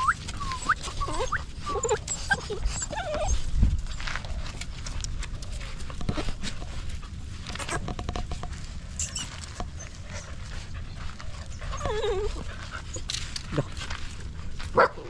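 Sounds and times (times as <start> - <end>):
puppy whining: 0.0 - 4.3, 8.9 - 13.7.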